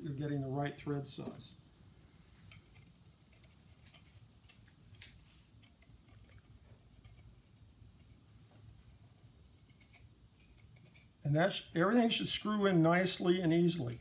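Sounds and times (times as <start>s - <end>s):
small metal parts clicking: 13.8s - 14.0s.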